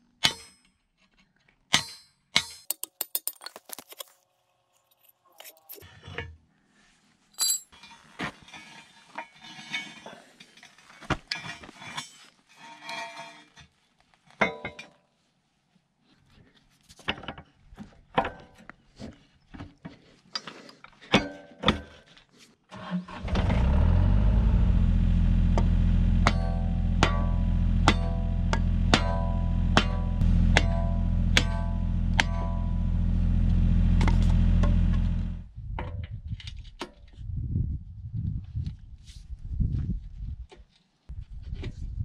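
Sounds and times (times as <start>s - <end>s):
metallic clinks of steel parts: 7.4s - 7.9s
low steady drone: 23.3s - 35.4s.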